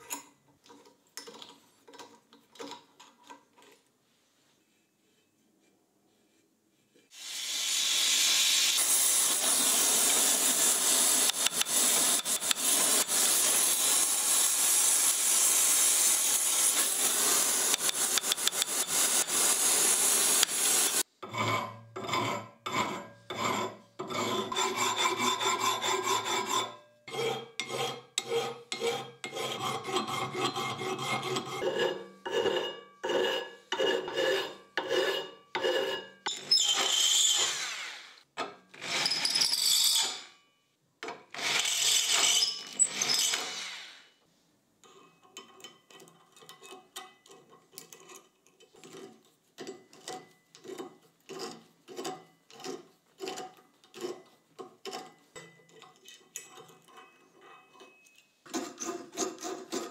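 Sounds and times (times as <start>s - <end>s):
drill spinning wire brush: 7.1s - 21.0s, 36.3s - 38.2s, 41.4s - 44.1s
gas torch flame hissing: 7.2s - 21.0s
hand file rasping on metal: 9.6s - 14.4s, 16.6s - 37.8s, 58.5s - 59.9s.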